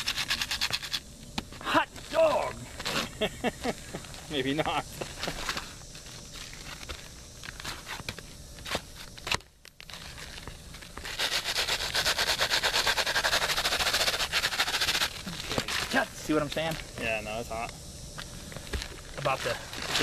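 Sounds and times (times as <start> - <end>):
rapid scraping strokes: 0.0 - 1.1, 9.9 - 17.2
shingle scraping: 0.0 - 4.3, 4.9 - 17.0.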